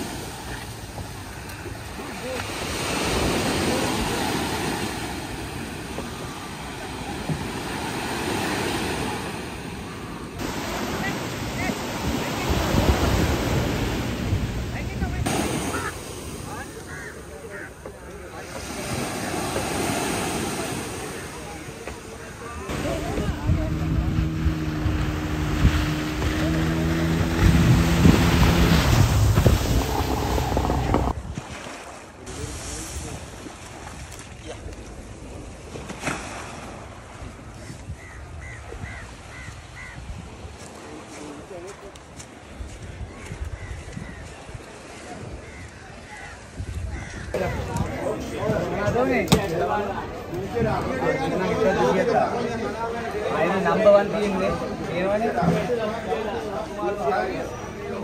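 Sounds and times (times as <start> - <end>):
surf washing onto beach: 0.0 - 38.2
waves breaking: 0.0 - 58.0
wind rumbling on microphone: 10.4 - 15.3, 22.7 - 31.6, 42.2 - 49.0
outboard motor running: 22.7 - 31.1.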